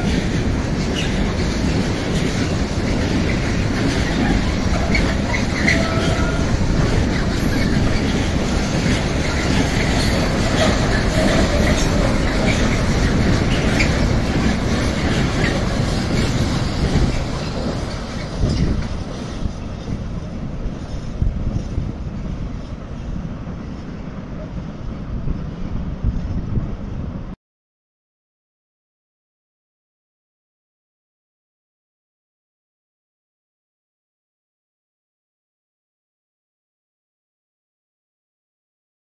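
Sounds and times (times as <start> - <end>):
train wheels rolling on rails: 0.0 - 27.4
wheel squeals: 3.0 - 18.9.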